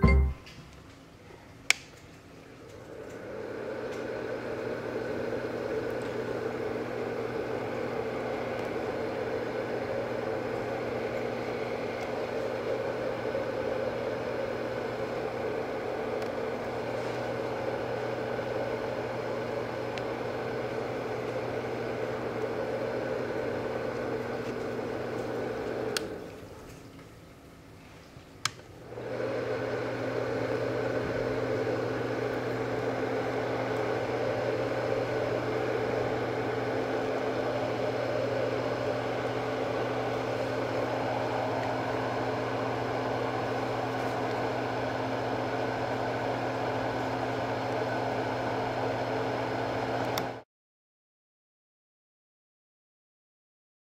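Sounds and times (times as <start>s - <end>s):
low motor hum: 2.9s - 26.4s, 28.8s - 50.4s
white noise machine air rush: 28.8s - 50.4s.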